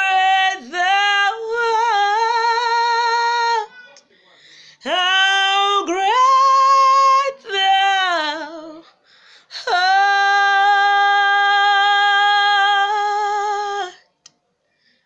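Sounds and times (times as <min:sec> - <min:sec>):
woman singing a hymn: 0:00.0 - 0:03.7, 0:04.8 - 0:14.0.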